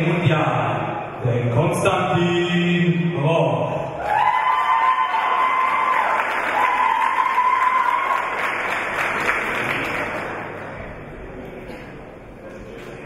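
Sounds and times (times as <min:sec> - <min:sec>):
crowd applauding: 0:04.0 - 0:11.2.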